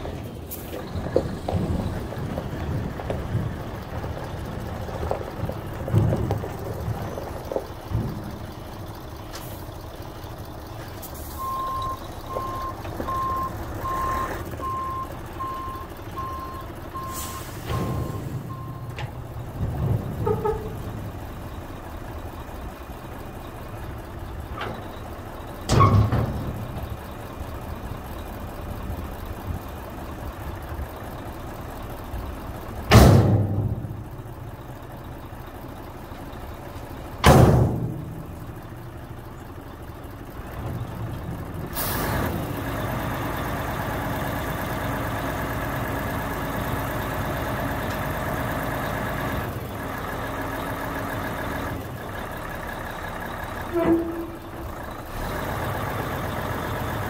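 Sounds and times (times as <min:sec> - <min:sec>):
diesel truck engine running: 0:00.0 - 0:57.0
reversing alarm beeping: 0:11.4 - 0:19.0.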